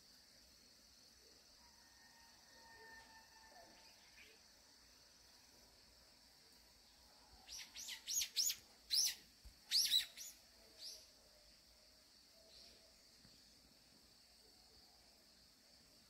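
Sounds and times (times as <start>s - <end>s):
small songbird chirping: 6.8s - 14.9s.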